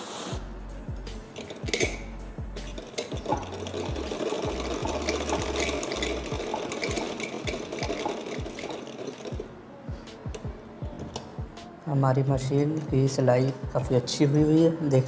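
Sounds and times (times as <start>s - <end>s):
sewing machine clatter: 2.7s - 9.5s.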